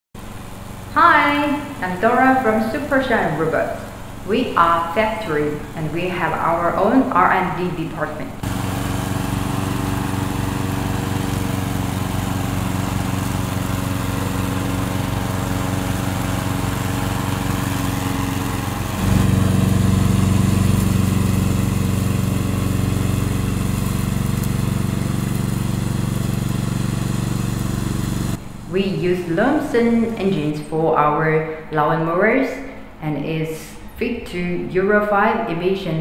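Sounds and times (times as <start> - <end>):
mower cutting tall grass: 0.2 - 2.9, 8.4 - 28.5
lawn mower engine running: 0.2 - 6.9, 8.4 - 28.7.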